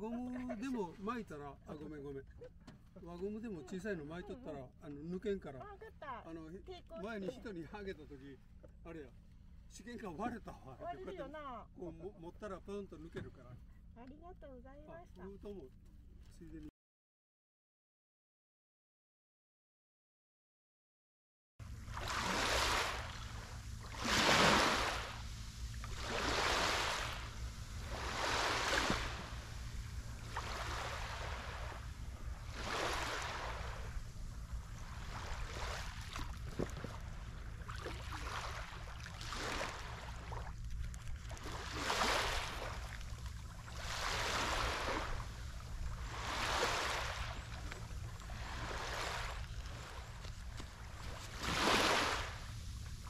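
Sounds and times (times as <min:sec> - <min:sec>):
steady low rumble: 0:21.6 - 0:51.5
waves breaking on beach: 0:21.7 - 0:53.0.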